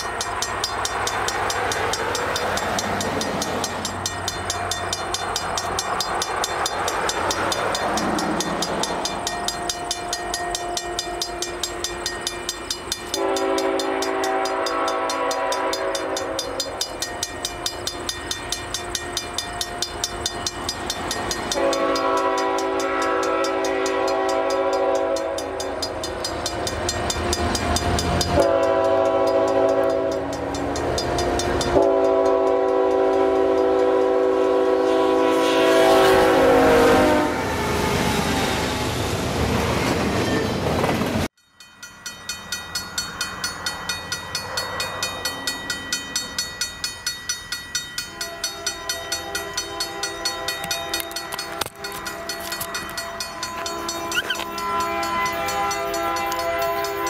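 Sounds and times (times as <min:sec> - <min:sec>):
locomotive engines running: 0:00.0 - 0:34.0
train rumble: 0:00.0 - 0:57.0
locomotive horn blasts: 0:13.1 - 0:16.8, 0:21.5 - 0:26.0, 0:26.8 - 0:37.9, 0:48.1 - 0:57.0.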